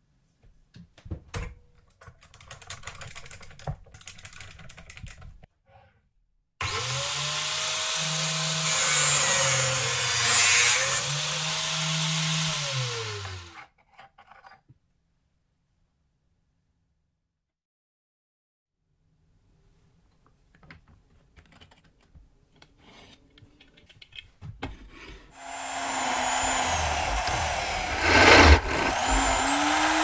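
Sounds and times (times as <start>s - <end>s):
angle grinder cutting metal: 6.6s - 13.6s, 25.4s - 30.0s.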